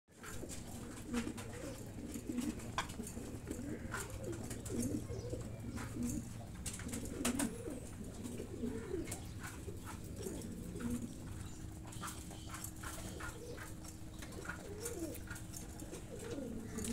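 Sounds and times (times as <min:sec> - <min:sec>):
pigeons cooing: 0:00.2 - 0:16.9.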